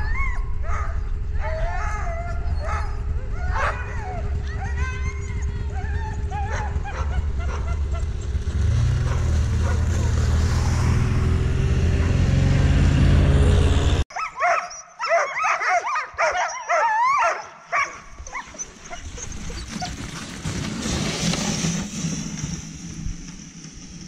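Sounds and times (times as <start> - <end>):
sled dogs yipping and howling: 0.0 - 10.5, 14.1 - 21.8
snowmobile engine running: 0.6 - 14.0, 19.0 - 24.0.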